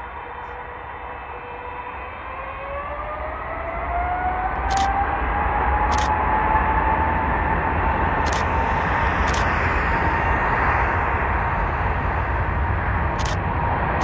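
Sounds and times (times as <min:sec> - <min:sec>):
jet engines at takeoff: 0:00.0 - 0:14.0
short clicks: 0:04.6 - 0:04.9, 0:05.9 - 0:06.1, 0:08.3 - 0:08.5, 0:09.3 - 0:09.5, 0:13.2 - 0:13.4.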